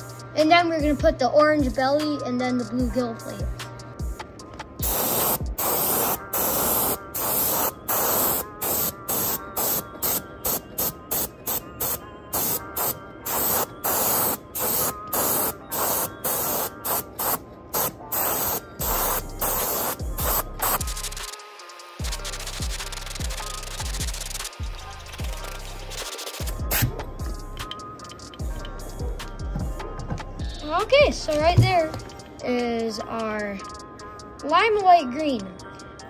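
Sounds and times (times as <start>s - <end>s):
airbrush spraying hiss: 4.8s - 27.0s.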